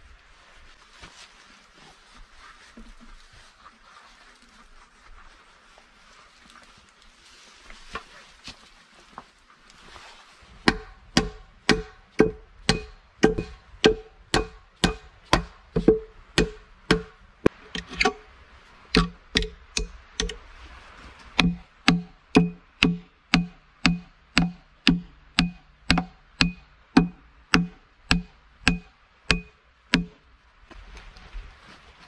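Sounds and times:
sacking rustling: 0.0 - 10.6
hatchet chopping into wood: 10.6 - 17.1, 19.0 - 20.4, 21.4 - 30.2.

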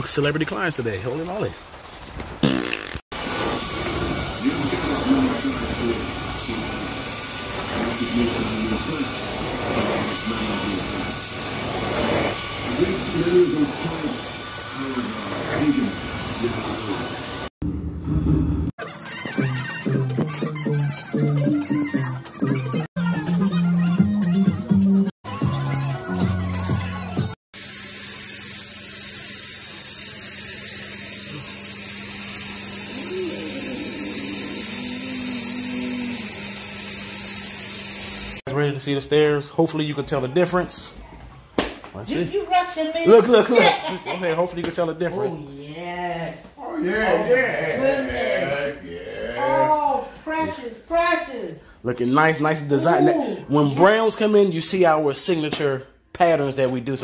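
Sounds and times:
electric motor whining: 27.6 - 38.4
extraction wand rushing hiss: 27.6 - 38.4.

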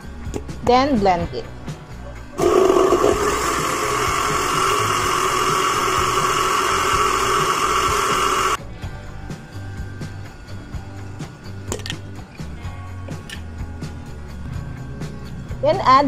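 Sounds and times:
blender motor running: 2.4 - 8.6.

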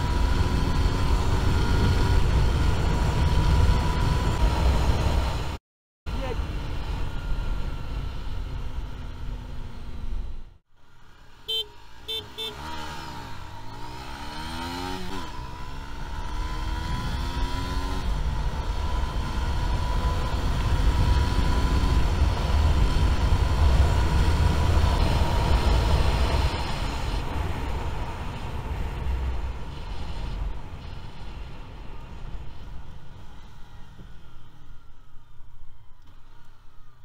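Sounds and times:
motorcycle engine accelerating: 0.0 - 5.6, 12.0 - 34.6.

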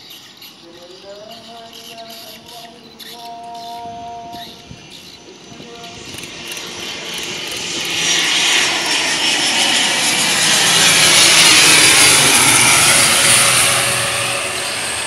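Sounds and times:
high whine: 0.0 - 15.0
wheels meeting runway: 0.0 - 15.0
turboprop engine roar: 1.2 - 15.0.

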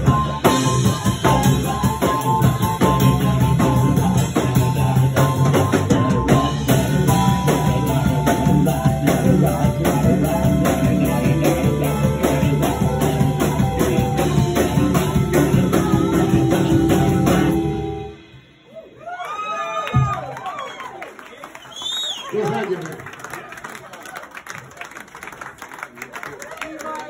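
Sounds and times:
blues band playing: 0.0 - 18.7
drum kit with busy cymbals: 0.0 - 18.9.

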